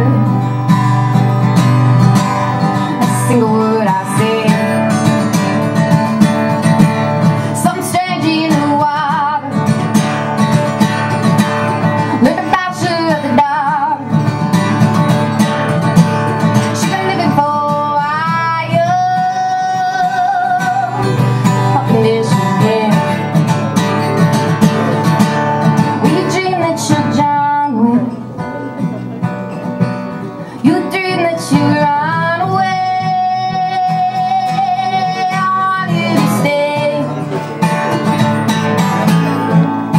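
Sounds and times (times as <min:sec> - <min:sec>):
woman singing folk song: 0:00.0 - 0:28.6, 0:29.2 - 0:39.6
acoustic guitar strumming: 0:00.0 - 0:39.9.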